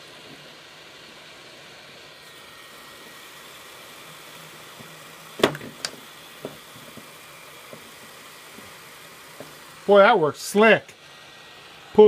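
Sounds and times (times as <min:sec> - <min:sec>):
hot air gun hissing: 0:00.0 - 0:12.0
sharp knock: 0:05.4 - 0:06.0.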